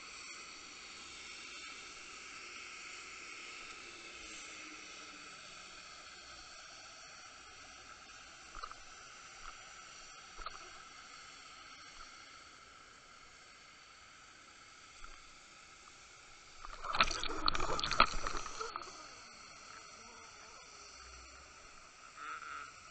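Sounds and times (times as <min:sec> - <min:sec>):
faint underwater hiss: 0:00.0 - 0:22.9
thin steady tones: 0:00.0 - 0:22.9
water rushing and sloshing: 0:15.0 - 0:22.0.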